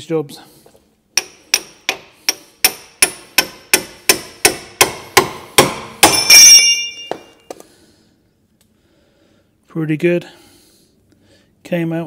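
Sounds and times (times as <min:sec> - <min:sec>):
hammer striking metal: 0:01.2 - 0:07.4.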